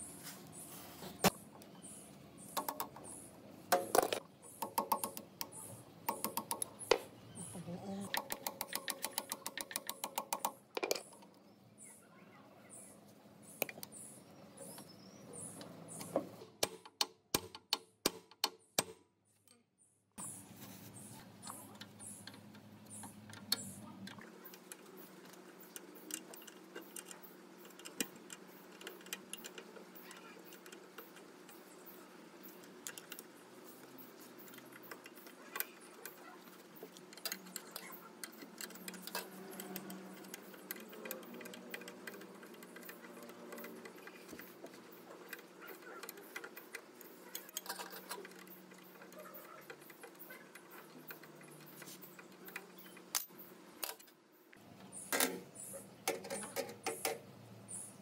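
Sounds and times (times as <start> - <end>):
metal spanner clicking on bolts: 8.0 - 11.2, 21.4 - 31.7, 34.4 - 54.1.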